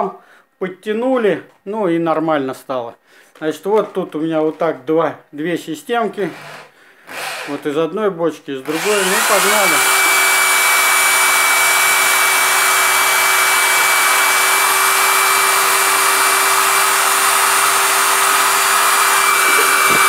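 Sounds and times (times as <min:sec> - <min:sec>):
electric drill motor whine: 0:08.7 - 0:20.0.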